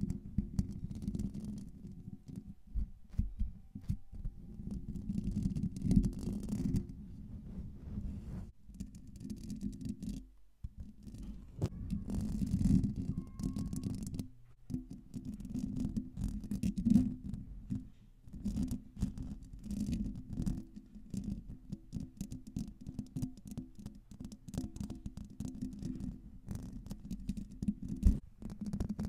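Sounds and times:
fingernails scratching microphone grille: 0.0s - 10.2s, 10.8s - 14.2s.

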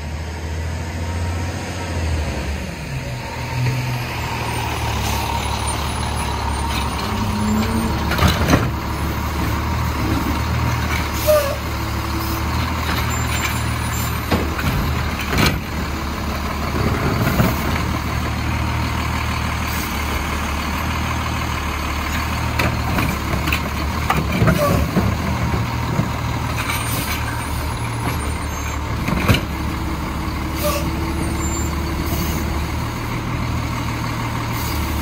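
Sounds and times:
truck engine drone: 0.0s - 35.0s
sharp knocks and clanks: 14.2s - 15.7s.

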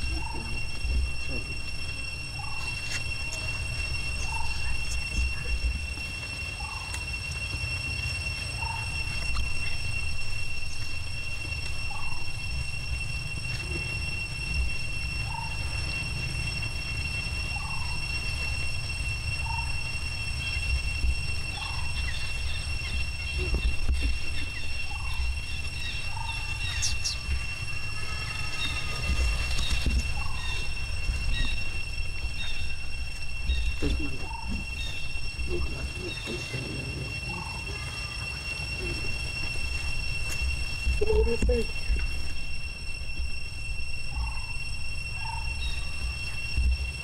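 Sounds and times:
high-pitched insect drone: 0.0s - 47.0s
high-pitched whine: 0.0s - 47.0s
low wind rumble: 0.0s - 47.0s
short chirping calls: 21.5s - 42.7s.

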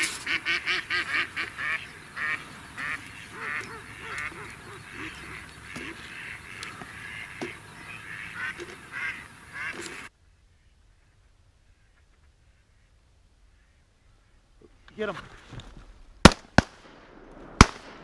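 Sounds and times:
duck quacking: 0.2s - 10.1s.

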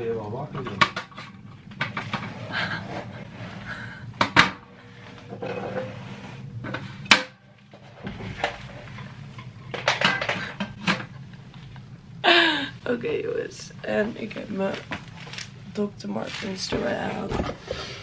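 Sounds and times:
faint steady hum: 0.0s - 18.0s
objects being handled and set down: 0.5s - 3.3s, 4.2s - 11.8s, 16.2s - 18.0s.

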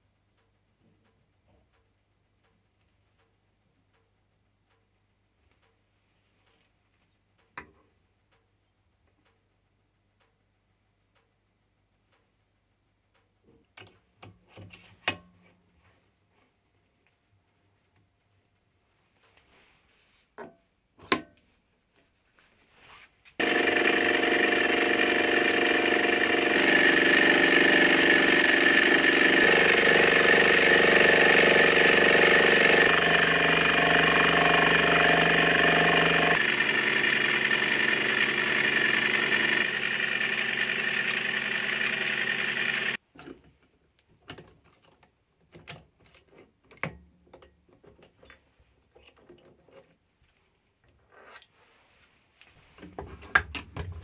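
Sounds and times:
lathe milling metal with whine: 23.4s - 43.0s.

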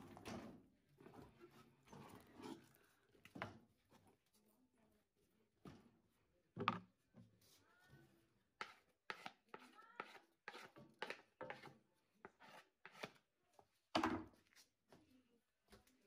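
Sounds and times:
spatula slapping dough in pot: 8.4s - 15.0s.

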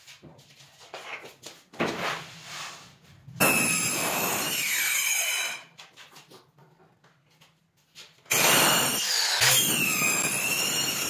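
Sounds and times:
circular saw whine: 8.3s - 11.0s.

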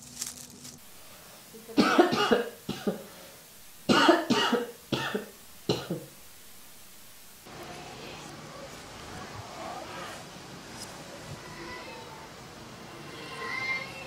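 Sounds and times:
person coughing: 1.8s - 3.1s, 3.9s - 6.2s.

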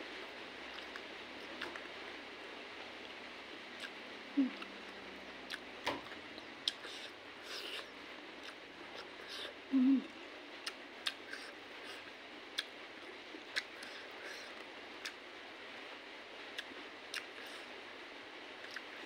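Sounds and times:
wet chewing and mouth smacks: 10.6s - 12.0s, 12.6s - 12.8s, 18.6s - 18.9s.

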